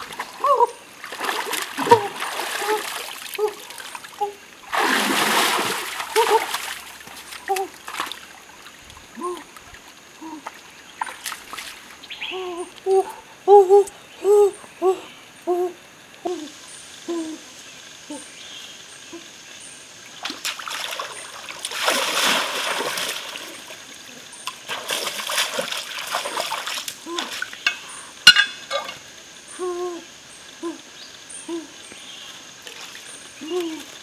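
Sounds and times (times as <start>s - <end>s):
water splashing in stream: 0.0s - 12.1s, 20.0s - 29.0s, 32.6s - 34.0s
bird hooting: 12.2s - 16.5s.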